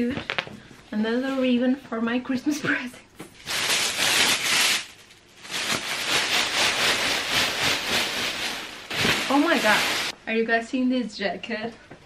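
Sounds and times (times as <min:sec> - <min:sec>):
tissue paper rustling: 0:03.4 - 0:10.2.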